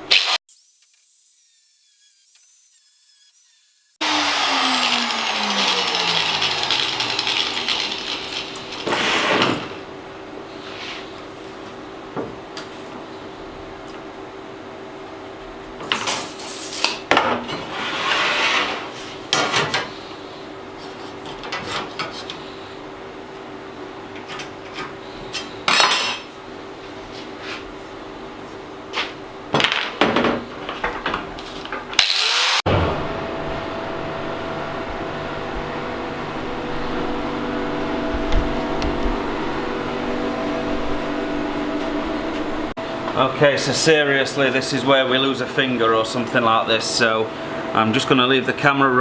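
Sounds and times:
electric motor humming: 0.5s - 8.9s, 32.0s - 42.7s.

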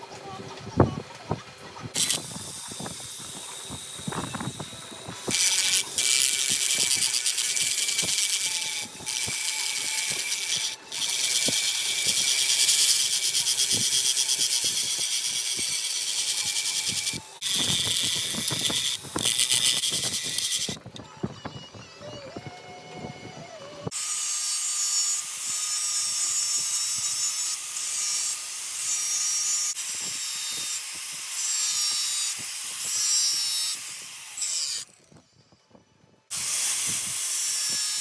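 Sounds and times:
grinding disc on steel: 1.9s - 21.1s.

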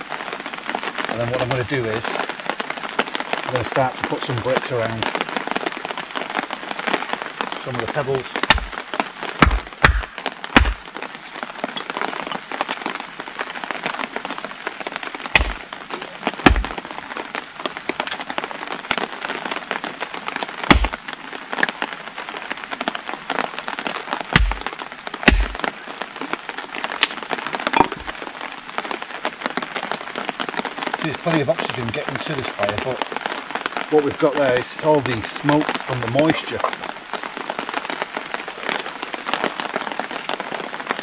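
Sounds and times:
heavy rain patter: 0.0s - 41.0s
hatchet chopping wood: 8.4s - 8.8s, 9.4s - 10.9s, 15.3s - 15.6s, 16.4s - 16.8s, 20.7s - 21.0s, 24.3s - 25.7s, 27.0s - 27.2s.

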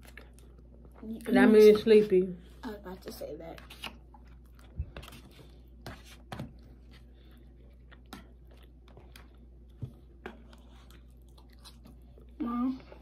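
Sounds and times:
people chewing: 0.0s - 1.9s, 2.5s - 13.0s.

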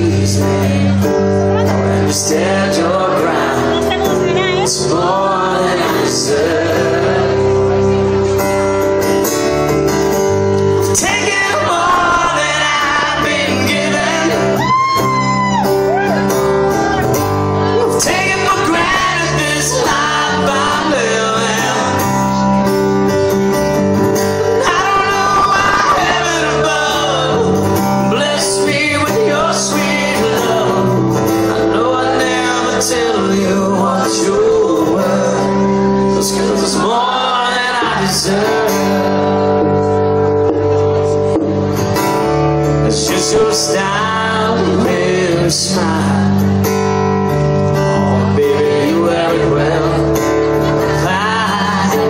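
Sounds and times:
live country band: 0.0s - 52.0s
person singing: 10.8s - 22.6s, 24.4s - 39.8s, 47.8s - 52.0s.

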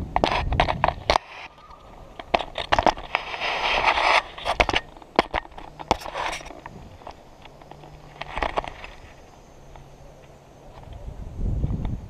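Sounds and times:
camera rubbing against clothing: 0.2s - 9.4s.

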